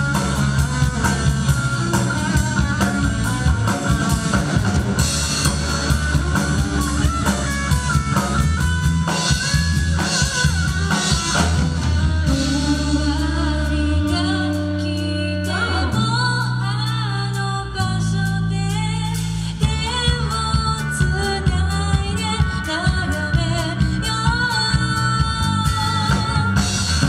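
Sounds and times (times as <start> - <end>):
drum kit: 0.0 - 27.0
live rock band playing: 0.0 - 27.0
woman singing: 12.0 - 27.0.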